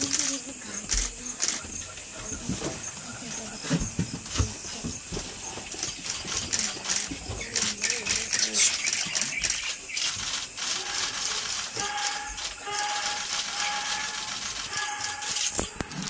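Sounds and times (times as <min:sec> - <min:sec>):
insect drone: 0:00.0 - 0:16.0
whistled note: 0:11.8 - 0:16.0.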